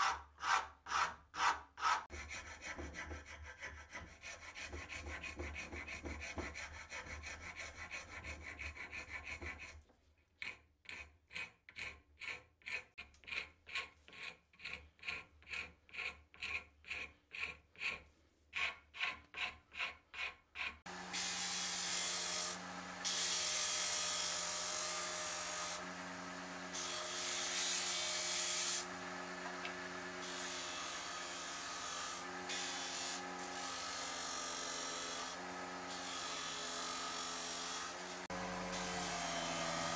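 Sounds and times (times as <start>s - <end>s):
hand file rasping on wood: 0.0s - 21.0s
wood grinding on sanding disc: 20.2s - 39.9s
disc sander motor running: 20.9s - 23.4s, 24.4s - 27.3s, 27.9s - 31.6s, 35.2s - 39.9s.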